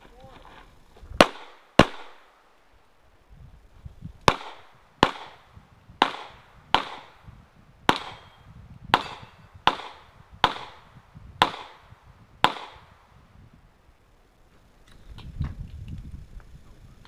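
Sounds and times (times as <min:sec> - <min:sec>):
pistol shots with echo: 0:01.2 - 0:02.4, 0:04.3 - 0:07.2, 0:07.9 - 0:13.1.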